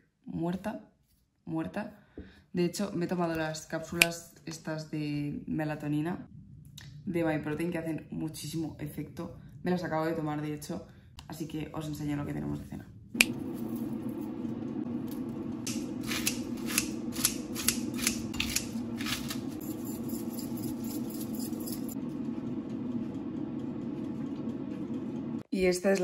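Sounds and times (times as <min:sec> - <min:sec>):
low background hum: 0:01.4 - 0:26.0
lettuce leaves tearing: 0:15.7 - 0:19.6.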